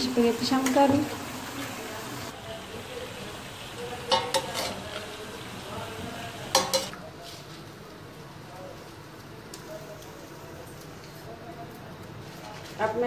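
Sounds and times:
low sizzle of frying: 0:00.0 - 0:13.0
metal utensil scraping pan: 0:04.1 - 0:04.9, 0:06.5 - 0:07.0.

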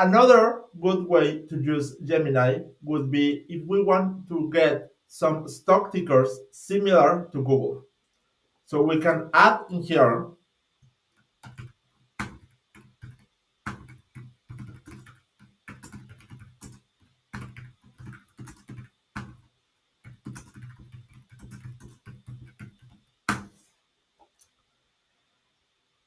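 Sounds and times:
typing on computer keyboard: 0:11.2 - 0:23.6.

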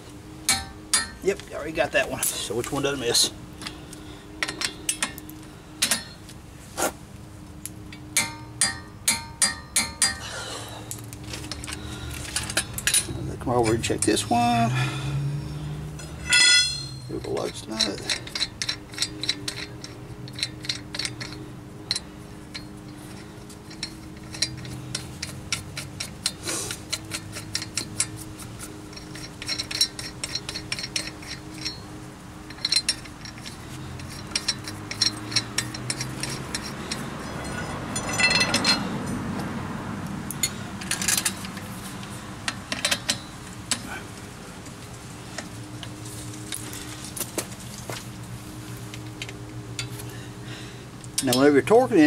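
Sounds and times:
lug nuts clinking on metal studs: 0:00.5 - 0:01.2, 0:04.4 - 0:06.3, 0:07.9 - 0:10.4, 0:11.4 - 0:14.4, 0:15.9 - 0:39.2, 0:40.3 - 0:44.0, 0:48.9 - 0:50.2, 0:51.0 - 0:52.0.

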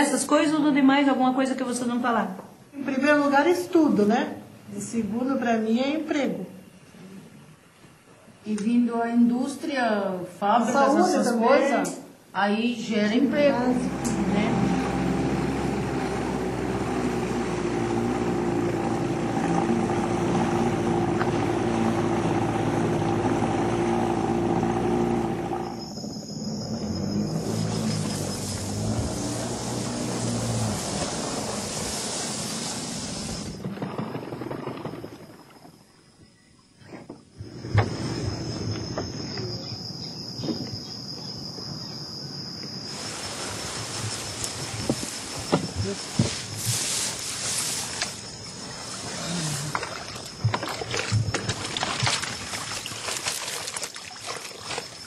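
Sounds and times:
insects trilling: 0:12.2 - 0:55.0
motor running steadily: 0:13.1 - 0:26.1, 0:26.8 - 0:32.2
broad hiss: 0:27.6 - 0:33.6, 0:42.8 - 0:49.7.

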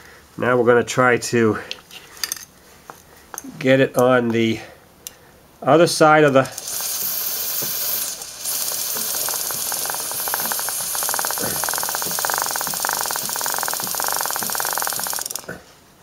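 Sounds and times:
aerosol spray hissing: 0:06.5 - 0:15.6.

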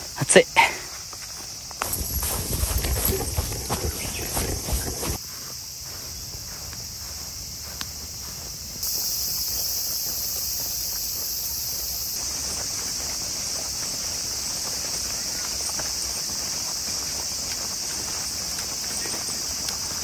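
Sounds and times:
insect chorus shrilling: 0:00.0 - 0:20.0.

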